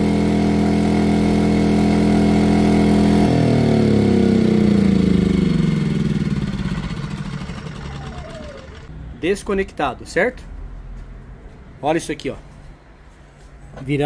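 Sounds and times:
generator engine winding down: 0:00.0 - 0:09.0.

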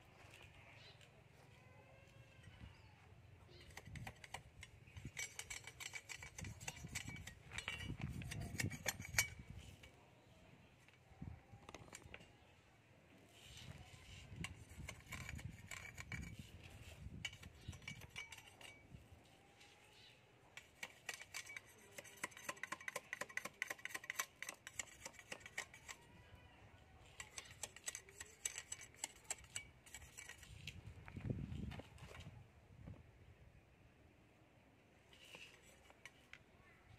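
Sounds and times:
rapid light clicks and scraping taps: 0:20.6 - 0:26.0, 0:27.1 - 0:30.8.

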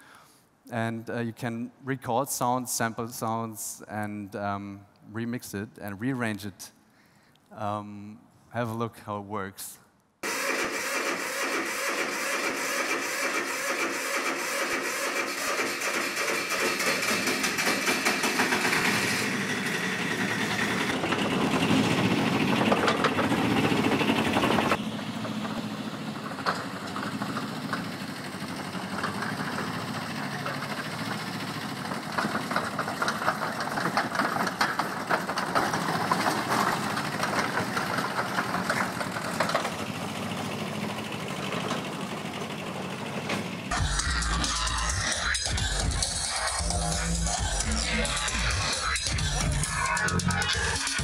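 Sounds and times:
tracked vehicle engine clattering: 0:10.8 - 0:51.0.

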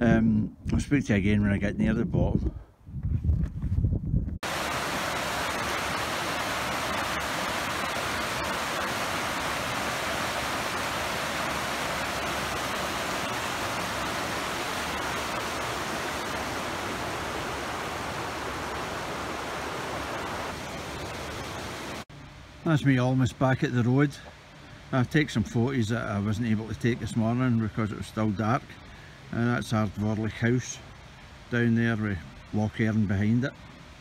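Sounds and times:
stream rushing over stones: 0:04.4 - 0:22.1.

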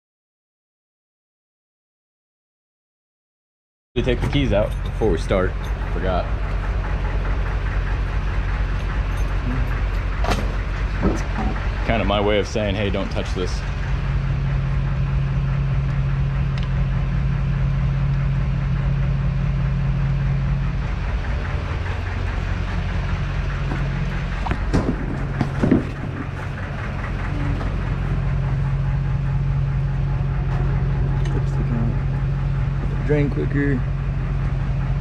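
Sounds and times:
diesel tractor engines idling: 0:04.0 - 0:35.0
sharp knocks: 0:23.7 - 0:26.6.

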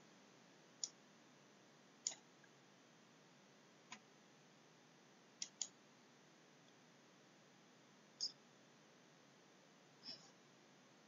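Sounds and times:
faint sharp clicks: 0:02.0 - 0:02.5, 0:05.4 - 0:05.8.

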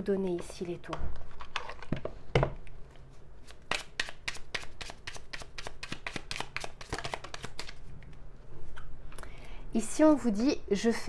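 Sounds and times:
cards being shuffled: 0:03.4 - 0:07.9.

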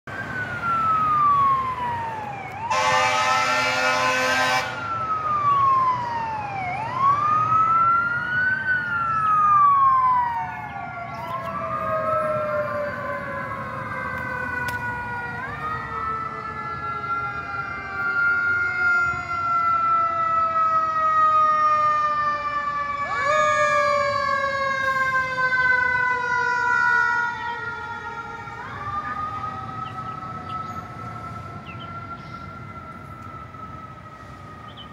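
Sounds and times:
fire engine sirens wailing: 0:00.1 - 0:34.9
horn blast: 0:02.7 - 0:04.8.

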